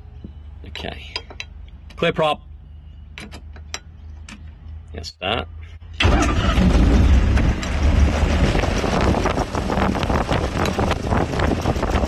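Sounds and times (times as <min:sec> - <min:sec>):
aircraft engine starting: 0:06.0 - 0:12.0.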